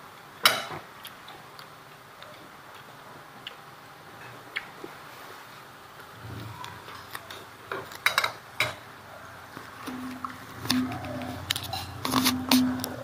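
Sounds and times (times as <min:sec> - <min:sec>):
utensils clinking against dishes: 0:09.9 - 0:13.0.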